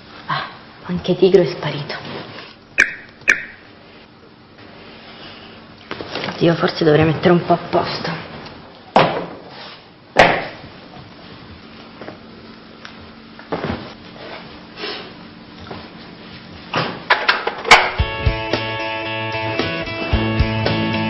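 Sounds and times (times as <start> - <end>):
guitar music: 18.0 - 21.0.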